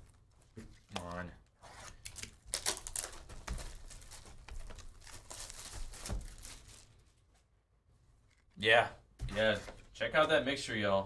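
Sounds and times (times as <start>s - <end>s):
plastic shrink wrap crinkling: 0.0s - 7.3s.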